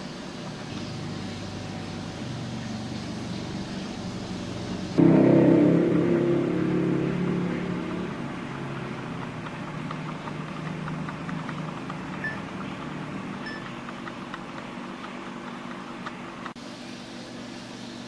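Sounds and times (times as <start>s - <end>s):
machine hum: 0.0s - 18.0s
faint rapid ticking: 8.5s - 16.6s.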